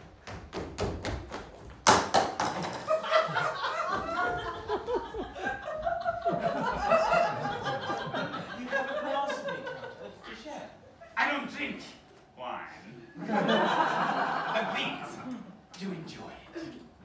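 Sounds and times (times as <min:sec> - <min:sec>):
audience laughing: 0:02.9 - 0:10.4, 0:13.2 - 0:15.6.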